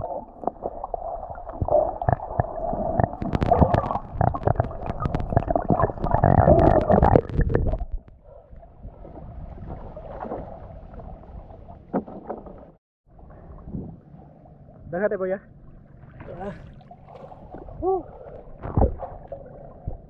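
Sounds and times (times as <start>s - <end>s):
sea water washing: 0.0s - 8.0s
muffled underwater rumble: 0.0s - 20.0s
sharp underwater clicks and knocks: 1.6s - 8.2s, 11.9s - 12.6s.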